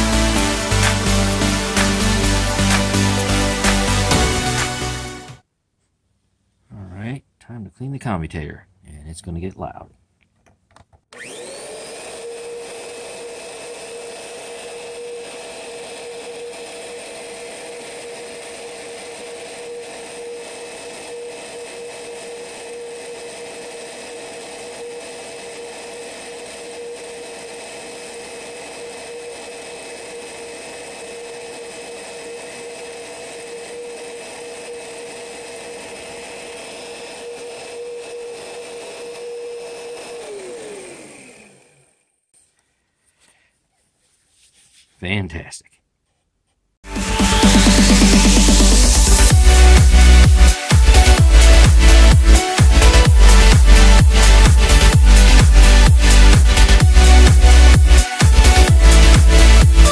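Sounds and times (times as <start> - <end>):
electric motor high whine: 11.1 - 42.2, 46.9 - 59.9.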